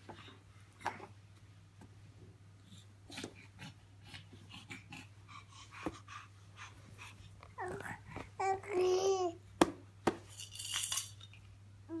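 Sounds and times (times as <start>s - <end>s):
baby breathing and grunting: 2.7s - 9.4s.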